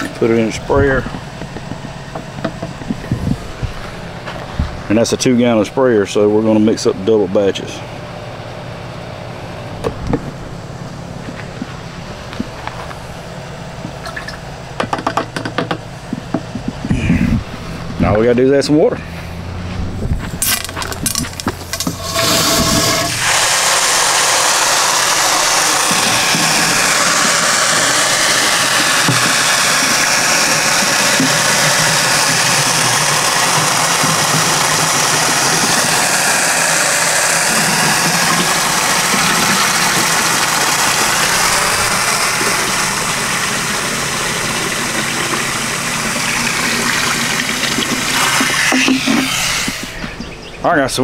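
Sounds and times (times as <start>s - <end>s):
hose water pouring into plastic tank: 20.4s - 50.0s.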